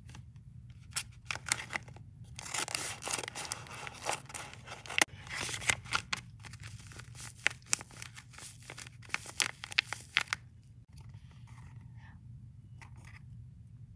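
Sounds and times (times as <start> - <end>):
paper bag crinkling: 0.9 - 10.4.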